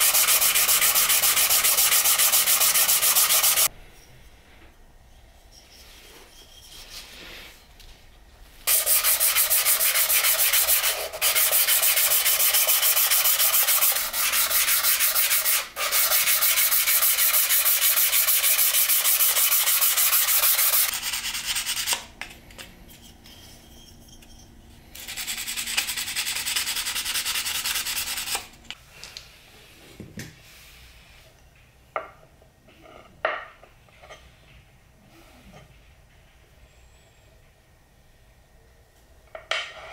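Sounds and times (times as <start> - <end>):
sanding metal on sandpaper: 0.0 - 3.7, 8.7 - 22.0, 25.0 - 28.4.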